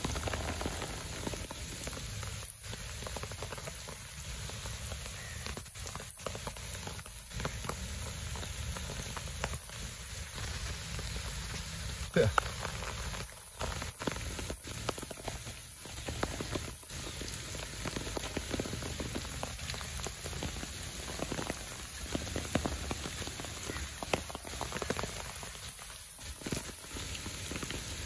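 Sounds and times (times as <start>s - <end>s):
steady rain on trees: 0.0s - 28.0s.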